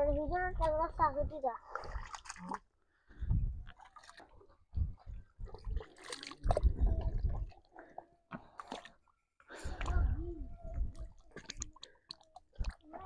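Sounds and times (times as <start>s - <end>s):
mud squelching and sucking: 3.6s - 9.0s.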